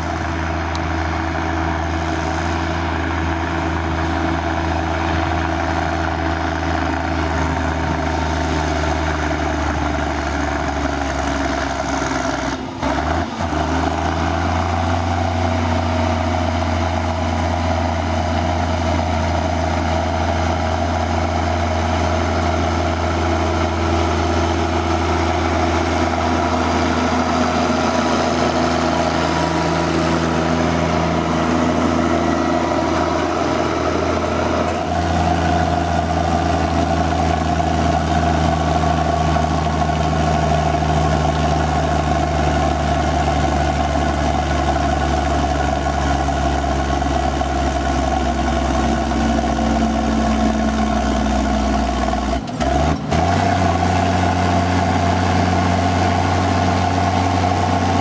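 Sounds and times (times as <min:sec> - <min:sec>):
tractor diesel engine droning: 0:00.0 - 0:58.0.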